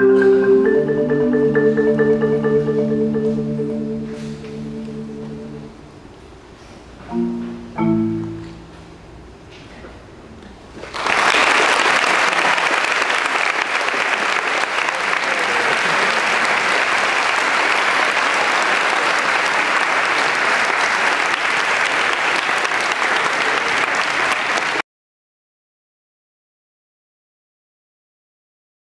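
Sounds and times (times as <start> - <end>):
large audience applauding: 10.8 - 24.8.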